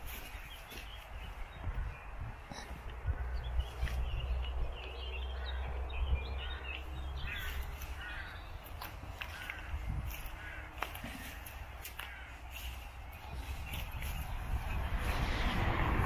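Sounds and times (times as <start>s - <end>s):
small birds chirping: 0.0s - 15.7s
crows cawing: 5.3s - 5.8s, 6.4s - 12.9s.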